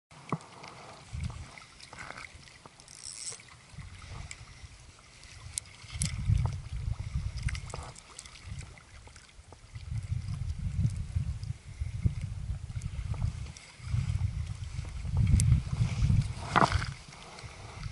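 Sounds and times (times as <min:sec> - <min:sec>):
water lapping and sloshing: 0:00.1 - 0:17.9.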